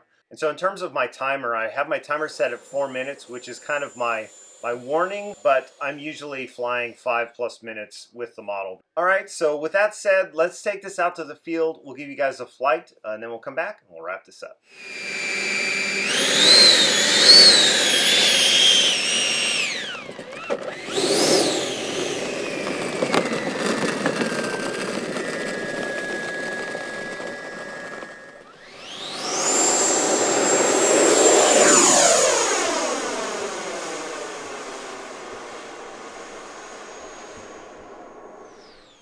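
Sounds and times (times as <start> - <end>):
electric ducted fan whining: 2.1 - 6.0, 14.8 - 39.0.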